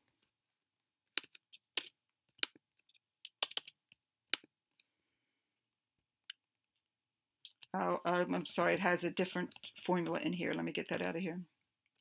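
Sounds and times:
keyboard and mouse clicks: 0:01.2 - 0:04.5, 0:07.4 - 0:07.7, 0:09.5 - 0:09.8.

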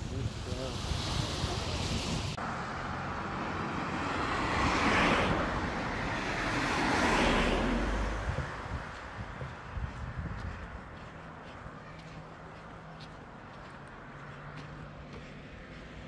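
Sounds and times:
surf: 0:00.0 - 0:02.4
cars passing: 0:00.0 - 0:16.0
wind: 0:00.0 - 0:16.0.

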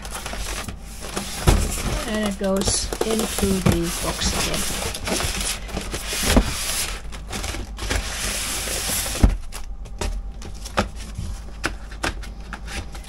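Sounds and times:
cardboard box scraping and rustling: 0:00.0 - 0:09.4
box thump: 0:01.4 - 0:03.9.

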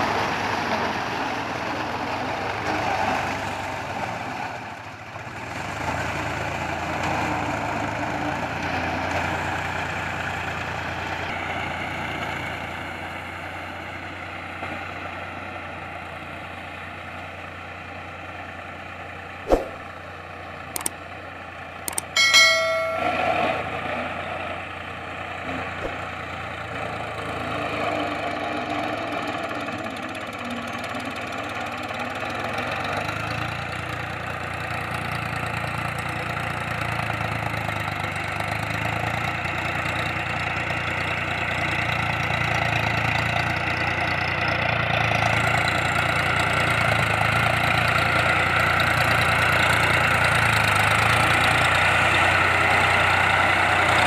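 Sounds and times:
tractor diesel engine running: 0:00.0 - 0:54.0
sharp click: 0:19.5 - 0:19.8, 0:20.8 - 0:21.0, 0:21.9 - 0:22.2
short pitched sound: 0:19.5 - 0:19.9, 0:21.9 - 0:23.6.

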